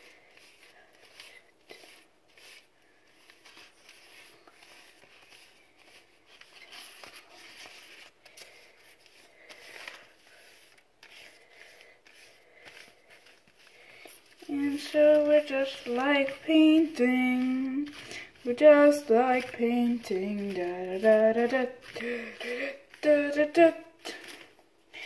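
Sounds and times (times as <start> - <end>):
paintbrush brushing on paper: 0.0 - 24.4.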